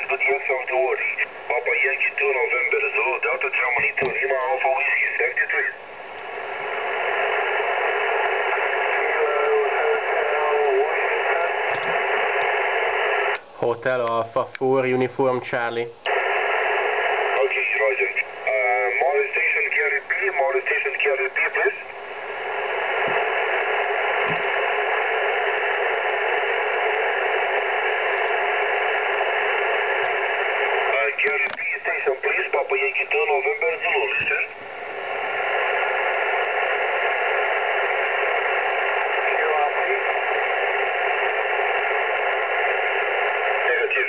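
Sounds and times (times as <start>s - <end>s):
radio static hiss: 0.0s - 44.0s.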